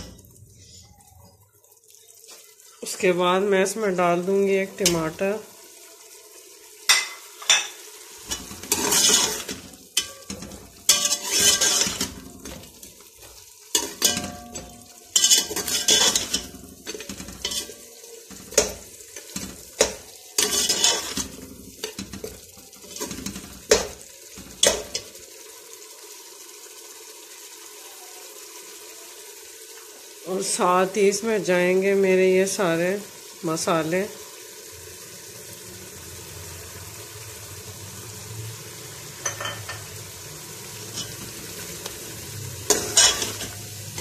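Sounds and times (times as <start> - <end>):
food sizzling: 0.0 - 44.0
metal spatula scraping a pot: 8.2 - 12.6, 13.2 - 23.9, 42.7 - 44.0.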